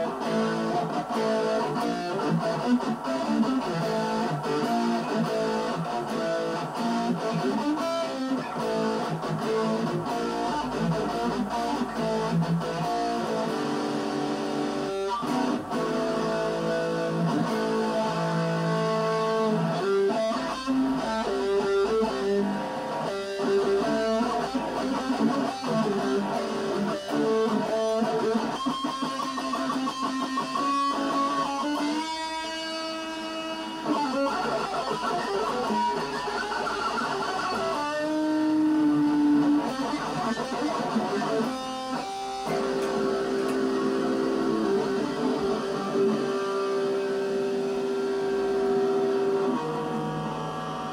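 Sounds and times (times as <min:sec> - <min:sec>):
electric guitar melody: 0:00.0 - 0:50.9.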